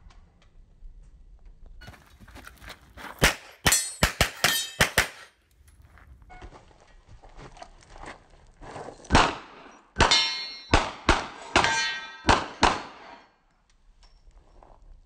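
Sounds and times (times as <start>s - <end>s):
handgun shots: 3.2s - 5.3s, 9.1s - 13.2s
steel target ringing: 3.6s - 5.2s, 10.0s - 13.3s.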